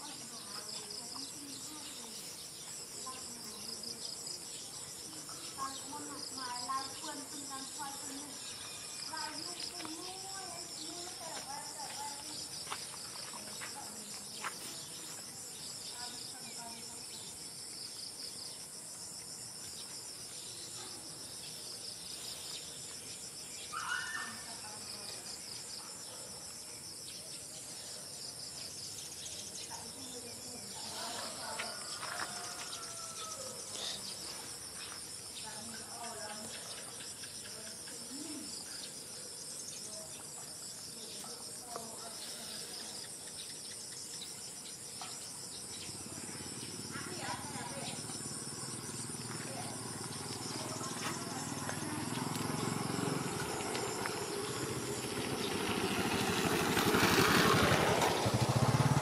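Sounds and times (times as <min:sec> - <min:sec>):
insects chirring: 0:00.0 - 0:59.0
faint bird chirps: 0:23.6 - 0:24.8.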